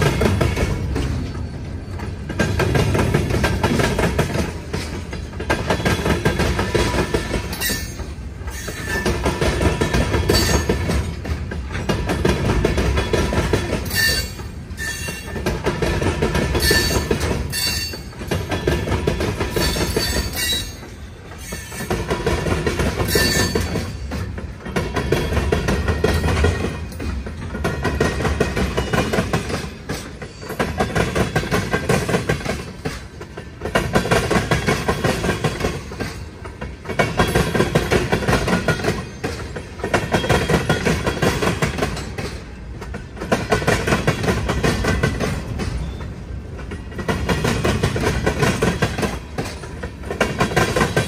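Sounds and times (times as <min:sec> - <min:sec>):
train wheels clacking over crossing: 0:00.0 - 0:51.0
wheel squeals: 0:07.5 - 0:09.3, 0:13.8 - 0:15.5, 0:16.6 - 0:18.7, 0:19.5 - 0:22.0, 0:23.0 - 0:24.2.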